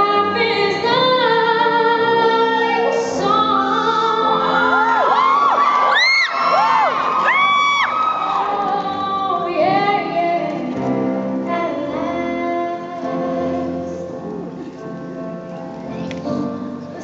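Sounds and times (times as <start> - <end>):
woman singing into a microphone: 0.0 - 5.4, 8.4 - 14.4.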